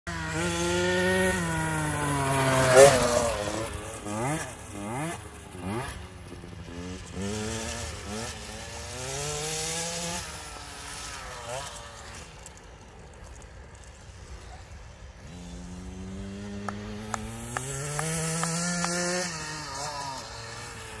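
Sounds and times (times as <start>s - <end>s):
dirt bike engine revving: 0.1s - 21.0s.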